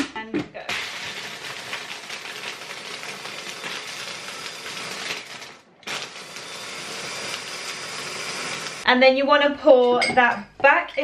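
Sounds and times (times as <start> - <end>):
ice clattering in jar: 0.8 - 6.2.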